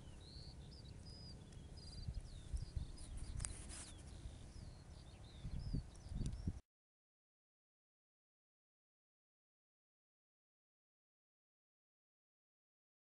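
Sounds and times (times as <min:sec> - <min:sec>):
small birds chirping: 0:00.0 - 0:06.6.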